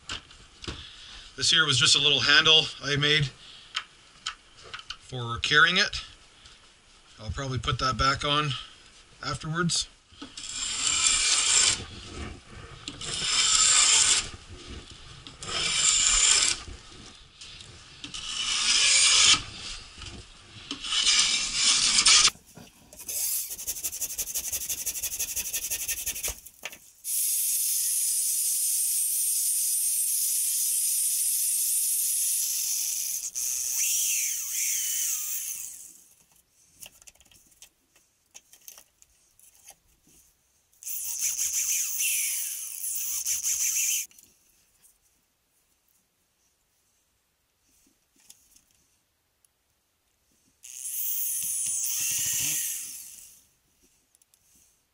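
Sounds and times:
handsaw cutting wood: 10.4s - 11.9s, 13.0s - 14.3s, 15.4s - 16.6s, 18.1s - 19.5s, 20.8s - 22.3s, 22.9s - 36.0s, 40.8s - 44.1s, 50.7s - 53.4s
scraping strokes on wood: 20.7s - 26.8s
small power tool running: 23.0s - 26.4s, 27.1s - 35.9s, 40.8s - 44.1s, 50.6s - 53.4s.

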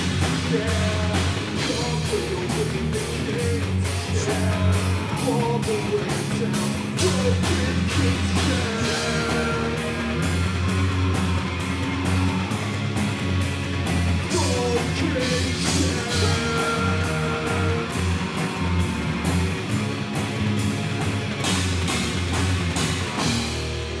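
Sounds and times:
rock band playing live: 0.0s - 24.0s
guitar sliding down in pitch: 8.0s - 24.0s.

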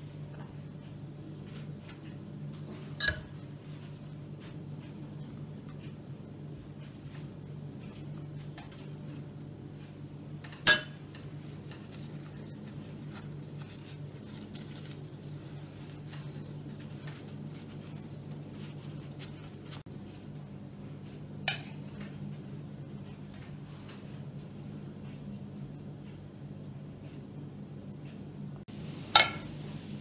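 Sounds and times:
steady low hum: 0.0s - 30.0s
utensils clinking against dishes: 3.0s - 3.4s, 10.5s - 11.2s, 29.1s - 29.5s.

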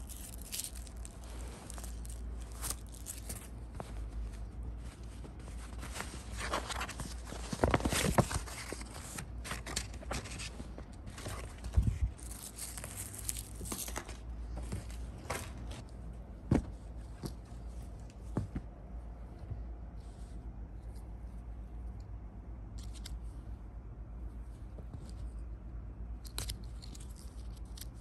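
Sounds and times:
fabric rustling and scraping: 0.0s - 21.4s.

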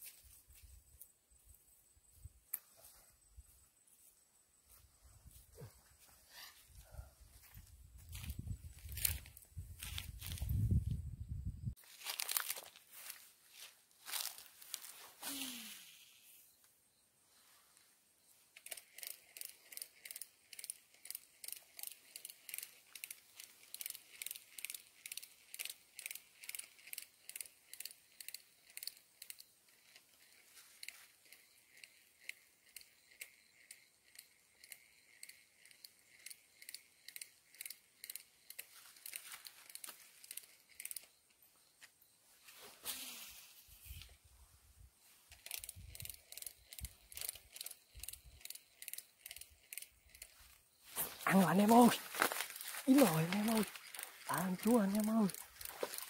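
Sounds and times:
rustle: 11.8s - 20.0s, 38.5s - 47.8s
high-pitched clicking: 45.3s - 50.4s, 52.5s - 56.0s.

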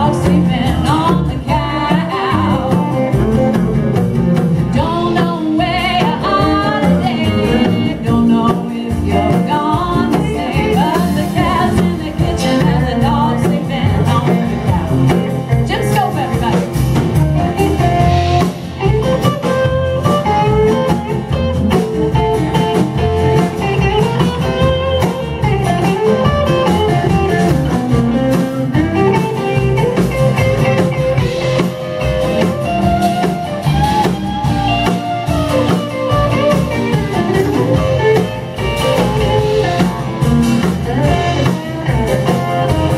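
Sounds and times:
woman singing: 0.0s - 3.3s, 4.7s - 16.9s, 40.6s - 42.9s
guitar melody: 0.0s - 42.9s
live blues-rock band: 0.0s - 42.9s.

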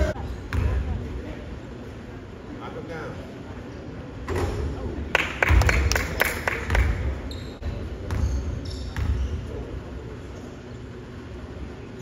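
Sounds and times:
basketball bouncing on court: 0.1s - 1.1s, 6.7s - 9.6s.

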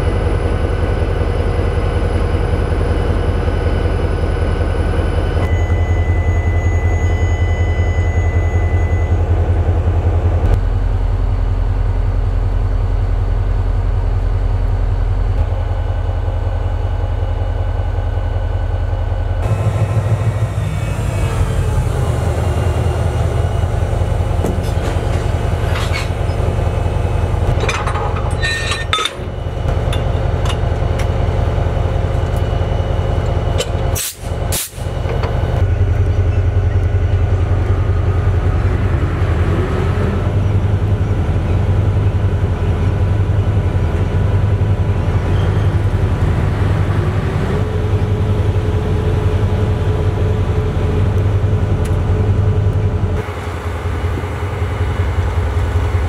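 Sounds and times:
diesel locomotive idling: 0.0s - 56.0s
faint higher tone: 5.4s - 9.5s.

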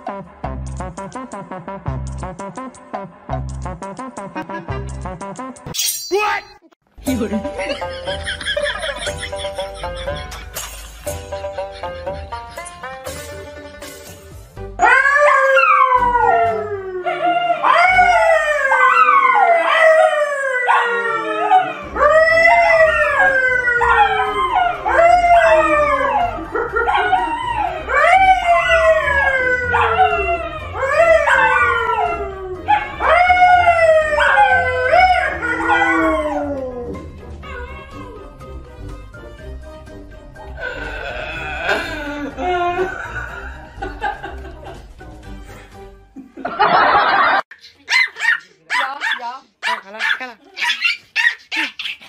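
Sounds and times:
dogs howling: 14.8s - 38.4s
man howling: 14.8s - 38.4s, 40.6s - 43.4s.

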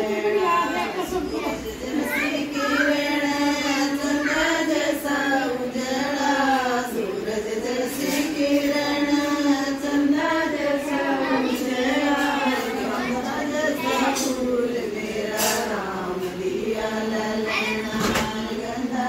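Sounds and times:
women singing folk song: 0.0s - 19.0s.

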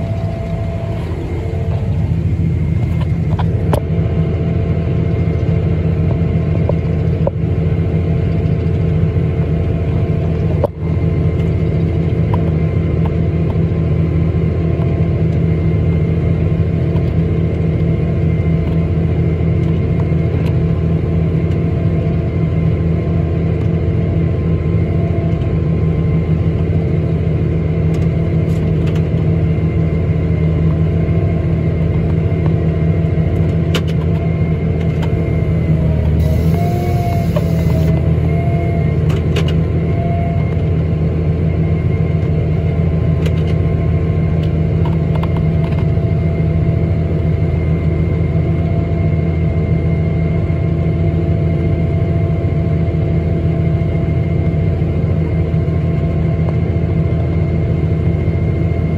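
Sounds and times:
whining tones: 0.0s - 3.8s, 34.2s - 40.8s
harvester engine and auger drone: 0.0s - 58.9s.

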